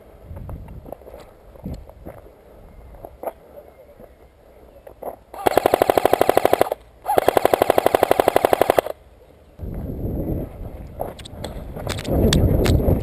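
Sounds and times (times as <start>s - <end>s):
airsoft rifle full-auto bursts: 5.4s - 9.0s.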